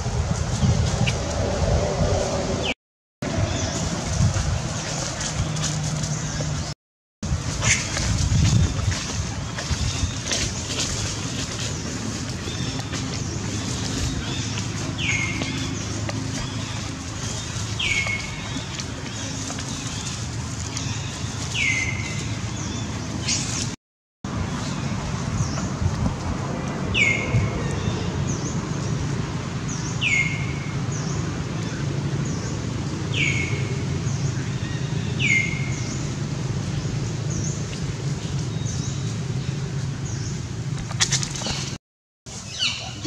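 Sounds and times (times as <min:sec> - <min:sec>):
low outdoor rumble: 0:00.0 - 0:43.0.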